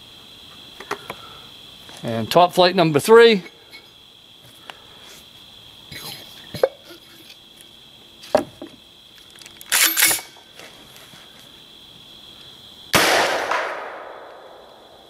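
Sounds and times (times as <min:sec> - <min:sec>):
launcher rattling: 0:09.4 - 0:10.3
launcher firing bang with echo: 0:13.0 - 0:14.5.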